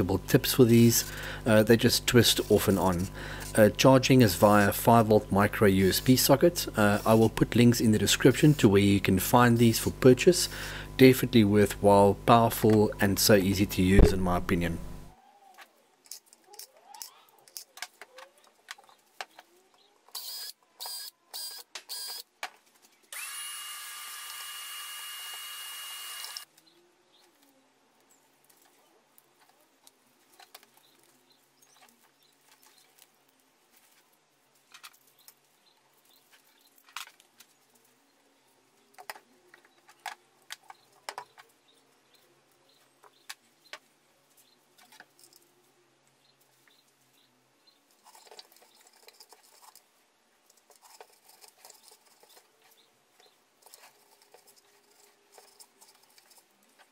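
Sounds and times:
scattered clicks and handling noises: 15.5s - 23.1s, 28.4s - 37.9s, 38.8s - 41.6s, 47.9s - 56.9s
power drill whirring: 23.1s - 26.5s.

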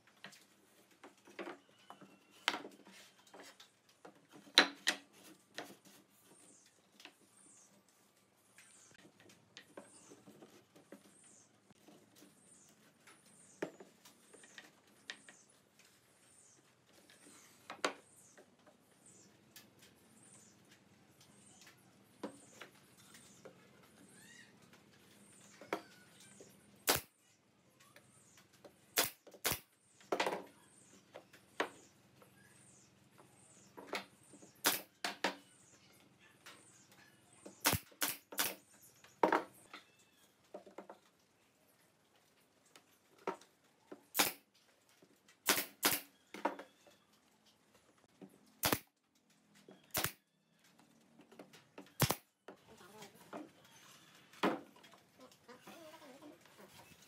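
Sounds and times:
pneumatic nailer shots: 26.8s - 27.1s, 29.0s - 29.7s, 34.6s - 34.9s, 37.6s - 38.6s, 44.1s - 44.4s, 45.4s - 46.1s, 48.6s - 48.9s, 49.9s - 50.2s, 52.0s - 52.3s.

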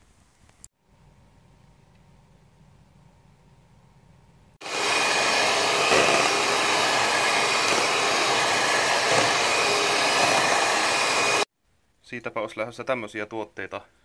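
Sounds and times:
electric hand mixer whipping: 4.6s - 11.5s.

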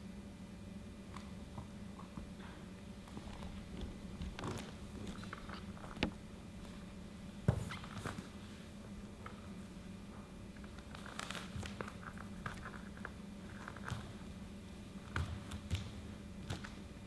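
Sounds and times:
steady low hum: 0.0s - 17.0s
bare feet on dance floor: 15.1s - 16.8s.

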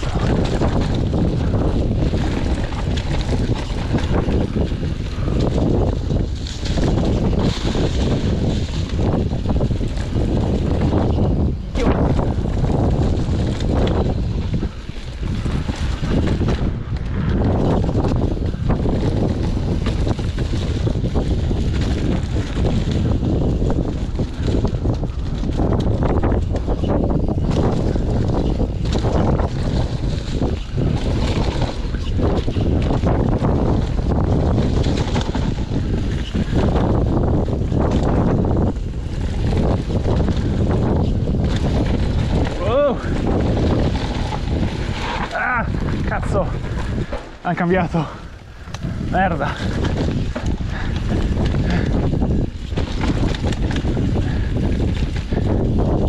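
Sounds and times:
bike rattling: 0.0s - 56.0s
tyres rolling on dirt and leaves: 0.0s - 56.0s
wind buffeting microphone: 0.0s - 56.0s
tyres crackling over leaves: 38.8s - 55.5s.

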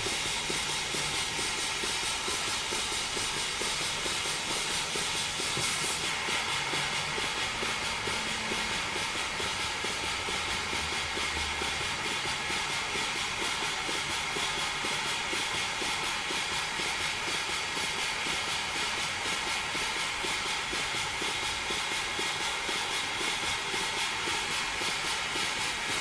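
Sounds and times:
air hissing: 0.0s - 16.1s
steam engine exhaust beat: 0.0s - 26.0s.

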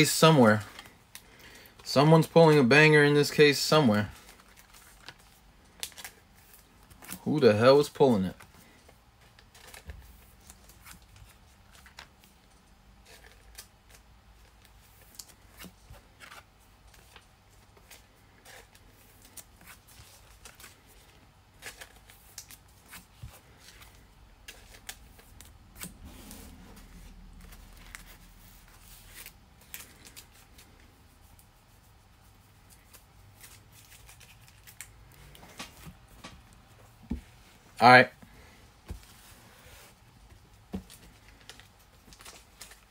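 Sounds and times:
trading cards clicking and rustling: 8.2s - 30.9s.

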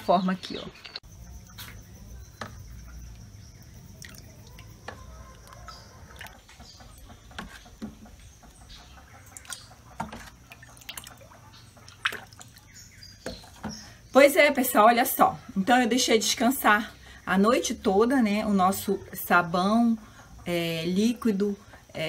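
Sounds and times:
wet plops and drips of soap: 3.9s - 6.4s, 11.8s - 12.6s.

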